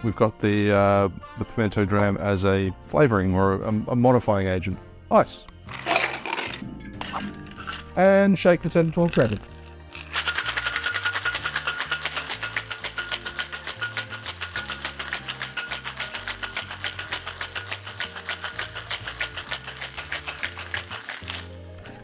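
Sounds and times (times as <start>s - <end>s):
ice rattling in cocktail shaker: 5.7s - 22.0s.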